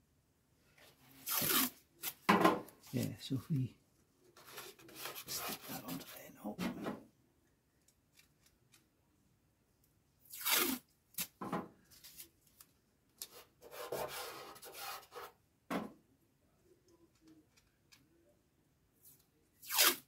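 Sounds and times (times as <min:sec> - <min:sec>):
masking tape pulled off roll: 0:01.2 - 0:02.2, 0:10.2 - 0:11.4, 0:19.6 - 0:20.0
tape tearing: 0:01.2 - 0:02.3, 0:10.2 - 0:11.4, 0:19.6 - 0:20.0.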